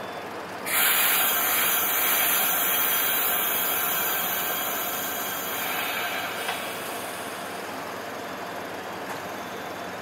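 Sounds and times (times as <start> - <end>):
steam venting hiss: 0.7 - 7.8.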